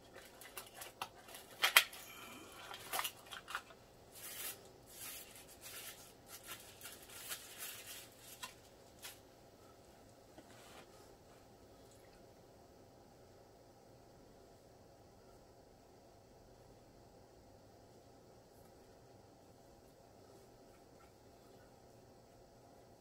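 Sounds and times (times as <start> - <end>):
cardboard and paper rustling: 0.0 - 9.3.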